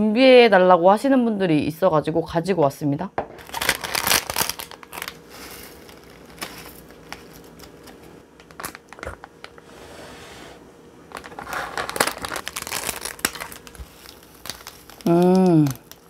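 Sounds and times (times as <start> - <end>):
plastic packaging crinkling: 3.4 - 9.6, 11.1 - 16.0.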